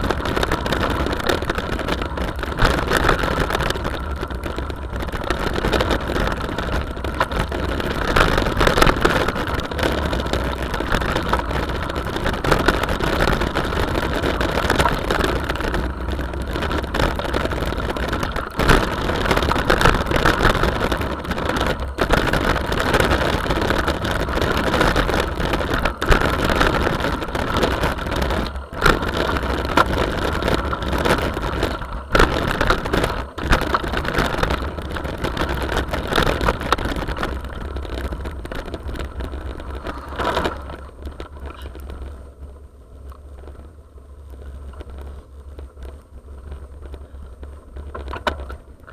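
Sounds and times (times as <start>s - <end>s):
wind buffeting microphone: 0.0s - 42.2s
tyres rolling over gravel: 0.0s - 48.9s.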